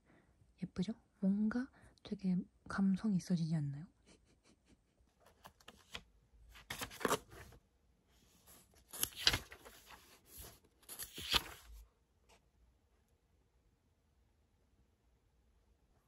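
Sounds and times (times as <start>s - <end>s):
book pages turning: 5.2s - 7.6s, 8.3s - 11.8s.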